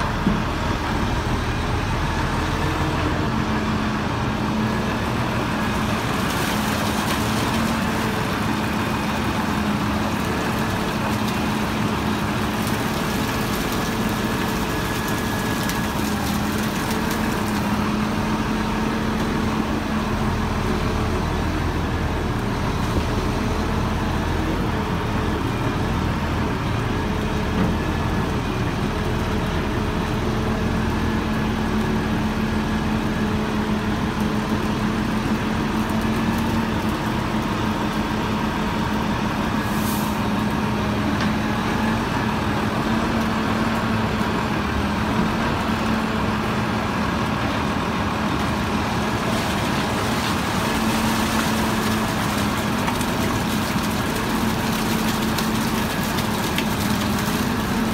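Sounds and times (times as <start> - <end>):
crane engine and hydraulic pump drone: 0.0 - 57.9
sludge sloshing: 48.8 - 57.9.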